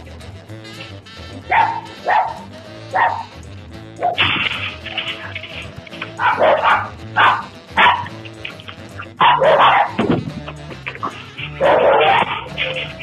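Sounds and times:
background music: 0.0s - 13.0s
dog barking: 1.4s - 3.3s, 4.0s - 4.3s, 6.1s - 8.3s, 9.1s - 10.1s, 11.0s - 13.0s.

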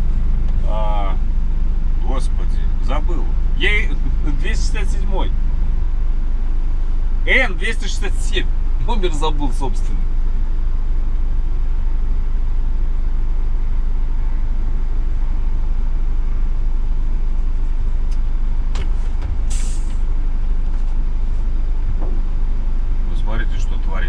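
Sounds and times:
diesel truck engine idling: 0.0s - 24.0s
air release hiss: 19.5s - 20.0s.

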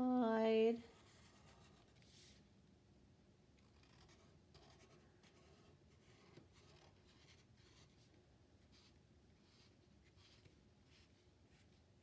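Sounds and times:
marker scratching on paper: 0.8s - 2.4s, 3.6s - 8.1s, 8.7s - 11.8s.

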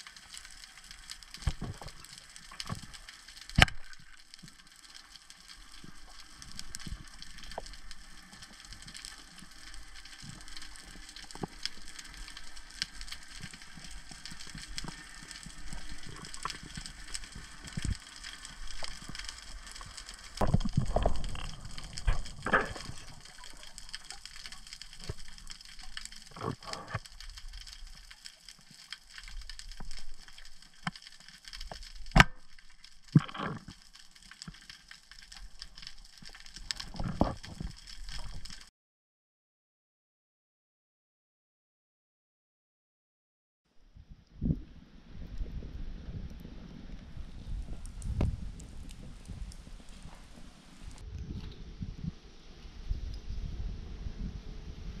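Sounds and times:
rushes of water: 0.0s - 38.7s
underwater crackling of snapping shrimp: 0.0s - 38.7s, 45.3s - 51.6s.

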